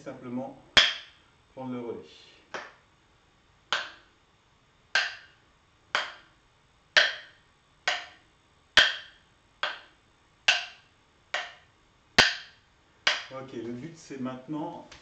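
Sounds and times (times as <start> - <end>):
wooden sticks clacking: 0.7 - 1.2, 2.5 - 2.8, 3.7 - 4.2, 4.9 - 8.2, 8.8 - 13.8.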